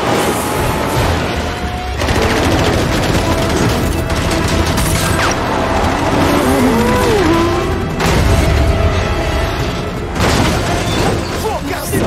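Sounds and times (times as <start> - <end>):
film music score: 0.0 - 12.0
rapid gunfire: 1.9 - 6.4
car engines racing: 5.0 - 9.8.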